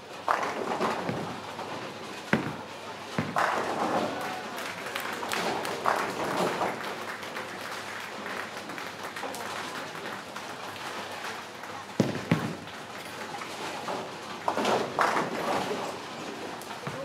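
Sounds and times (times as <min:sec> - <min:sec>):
clatter of bowling alley: 0:00.0 - 0:17.0
applause: 0:00.2 - 0:01.1, 0:03.2 - 0:16.0
ball hitting bowling pins: 0:00.2 - 0:04.2, 0:12.0 - 0:12.7, 0:13.8 - 0:16.0.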